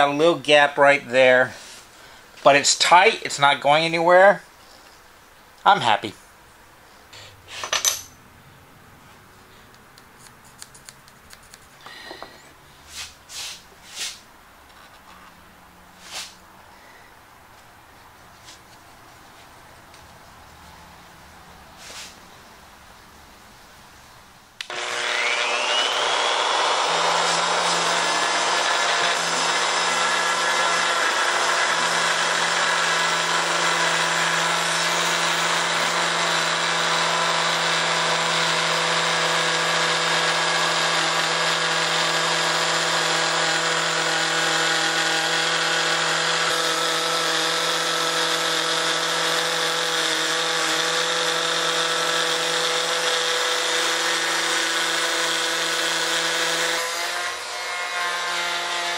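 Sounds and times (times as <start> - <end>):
router motor whine: 24.6 - 58.9.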